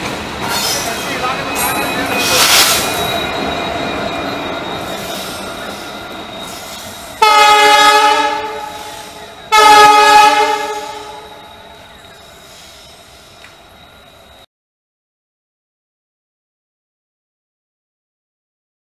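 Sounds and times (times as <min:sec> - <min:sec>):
passing train rumble: 0:00.0 - 0:14.5
diesel locomotive horn blasts: 0:07.2 - 0:11.7.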